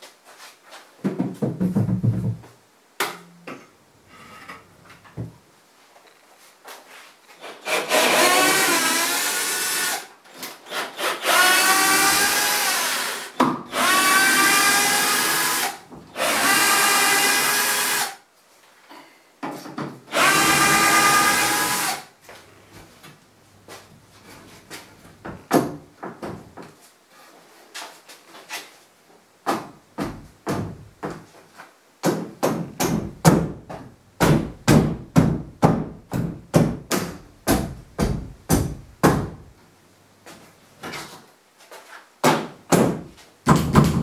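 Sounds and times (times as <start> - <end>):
knocks and thud from handling: 1.0 - 2.6, 25.2 - 26.8
cordless drill running: 7.6 - 10.1, 10.7 - 18.2, 20.1 - 22.1.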